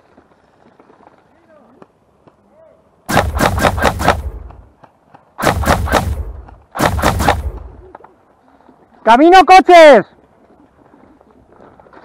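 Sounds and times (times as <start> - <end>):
airsoft rifle firing bursts: 3.1 - 4.6, 5.4 - 7.7.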